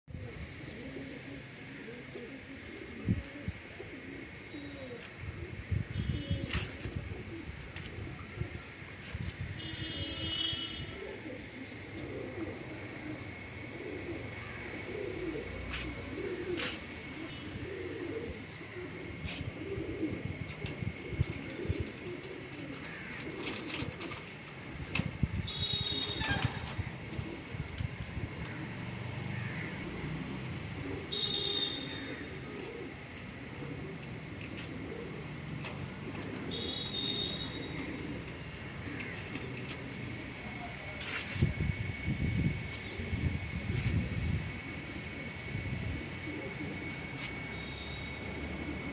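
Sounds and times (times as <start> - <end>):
pigeons cooing: 0.1 - 48.9
metal latch clicks and rattles: 20.5 - 25.2, 38.2 - 40.1.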